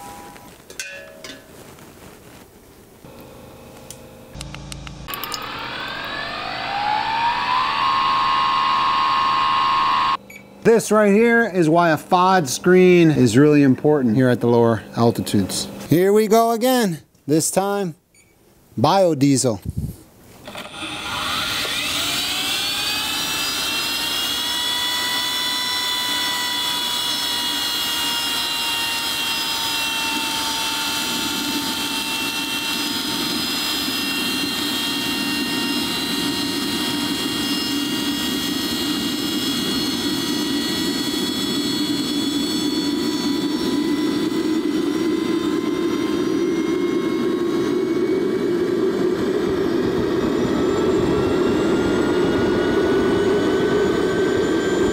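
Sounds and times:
turbine engine starter whine: 0:03.1 - 0:10.5, 0:20.4 - 0:54.9
low rumble of jet engine: 0:30.2 - 0:54.9.

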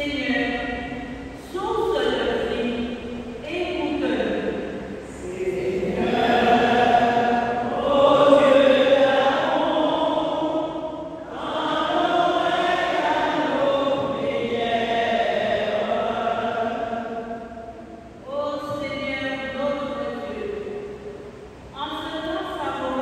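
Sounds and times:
congregation singing chanted refrain: 0:03.9 - 0:18.8.

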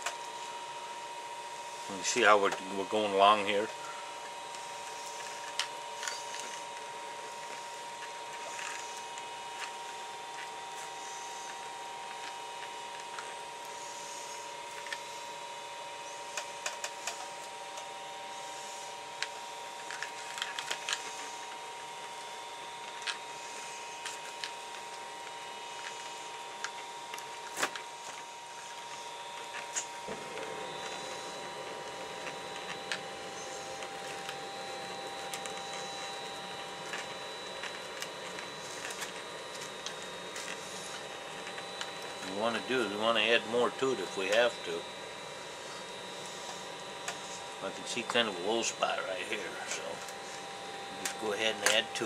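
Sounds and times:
steady background hum: 0:00.0 - 0:52.0.

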